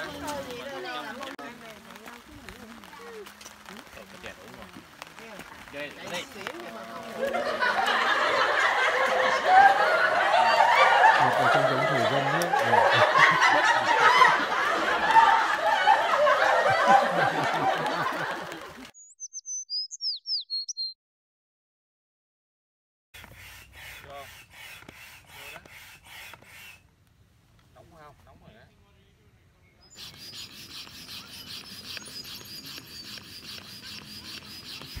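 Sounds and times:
men talking: 3.8 - 8.2, 11.0 - 13.9
men laughing loudly: 7.2 - 18.9
high bird-like chirps: 19.0 - 21.0, 29.7 - 35.0
hand pump strokes: 23.2 - 26.8, 29.9 - 35.0.

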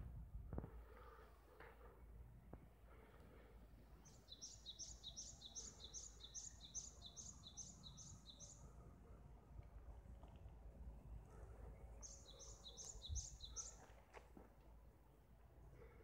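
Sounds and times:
faint low rumble: 0.0 - 4.3, 8.2 - 16.0.

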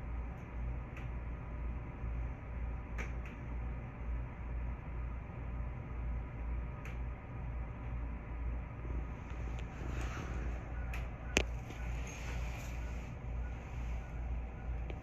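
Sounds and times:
electric train hum with throb: 0.0 - 15.0
sharp clicks: 2.9 - 3.4.

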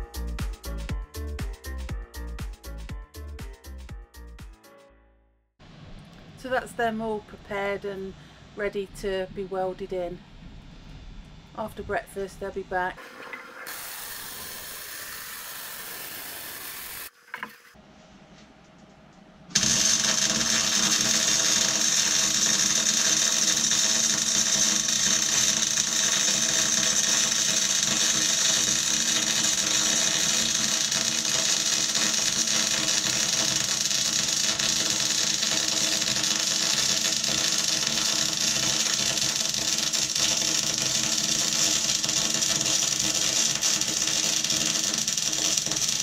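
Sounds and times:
power tool whine: 13.6 - 17.6, 19.6 - 46.0.

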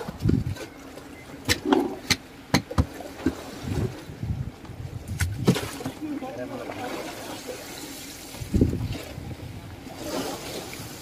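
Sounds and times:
sharp knocks and clicks: 1.4 - 3.4.

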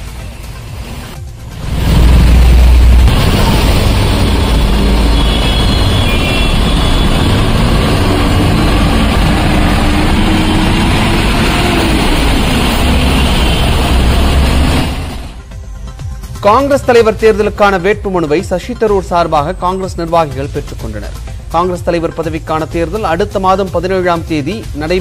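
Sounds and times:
vehicle engines running: 0.0 - 15.5
steady rushing noise: 0.0 - 15.6.

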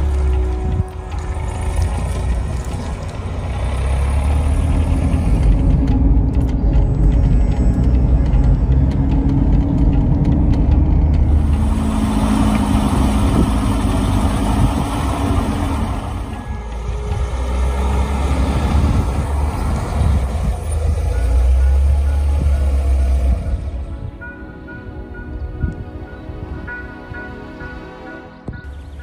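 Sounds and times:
car engine inside cabin: 0.0 - 23.9
deep low rumble: 0.0 - 24.2
road noise: 0.0 - 29.0
car passing by: 10.9 - 23.9.

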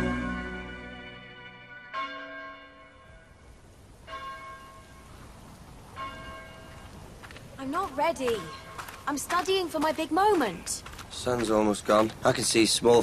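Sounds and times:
music: 0.0 - 2.2
bell ringing: 0.0 - 3.3.

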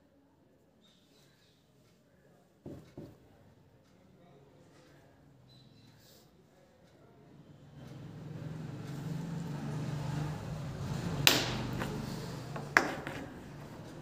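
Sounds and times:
plastic marker knocking on wood: 2.6 - 3.2, 11.3 - 13.4.

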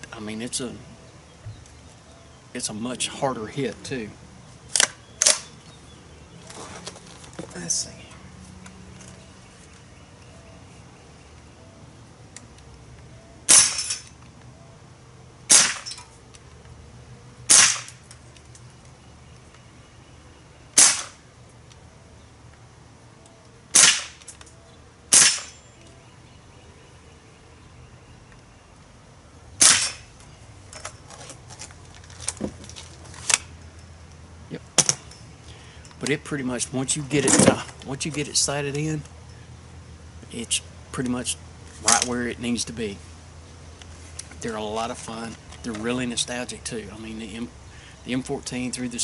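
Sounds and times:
air rifle shots cracking: 13.5 - 14.0, 15.5 - 16.0, 17.5 - 18.0, 20.8 - 21.2, 23.7 - 24.3, 25.1 - 25.6, 29.6 - 30.1.

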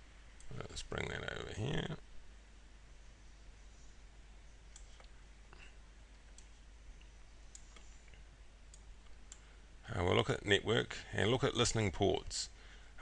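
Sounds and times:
low hum and hiss: 0.0 - 13.0
computer mouse clicks: 4.7 - 5.2, 6.3 - 9.5.

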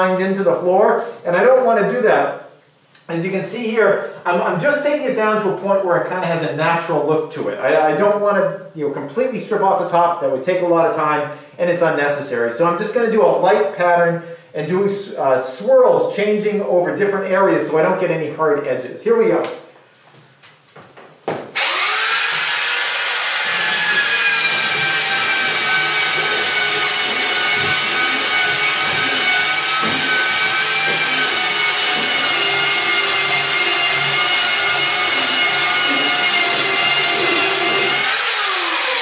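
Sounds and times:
sander grinding wooden floorboards: 21.4 - 39.0
belt sander whining: 21.6 - 39.0.

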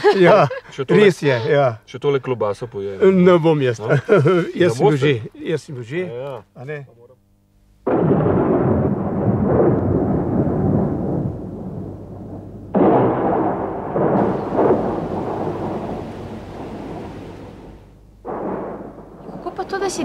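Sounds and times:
thunder claps rolling: 7.9 - 20.0
rain hissing: 8.1 - 20.0.

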